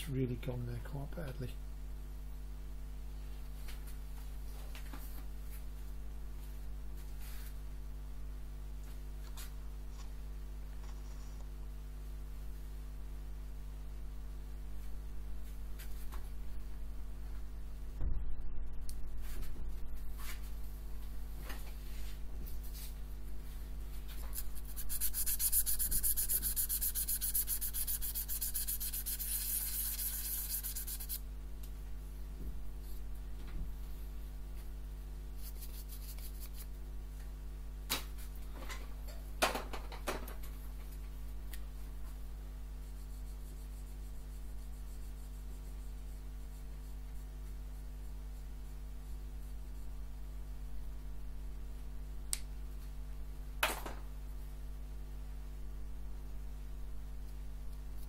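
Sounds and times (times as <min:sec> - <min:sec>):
low electrical hum: 0:00.0 - 0:58.0
abrasive rubbing on metal: 0:24.4 - 0:31.2.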